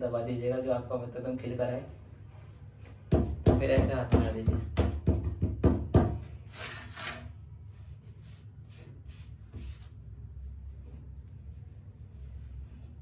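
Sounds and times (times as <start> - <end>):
hands rubbing paper: 7.7 - 13.0.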